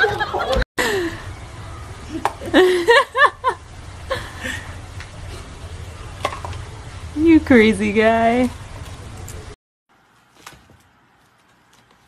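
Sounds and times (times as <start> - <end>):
people chuckling: 0.0 - 1.1, 2.0 - 4.7.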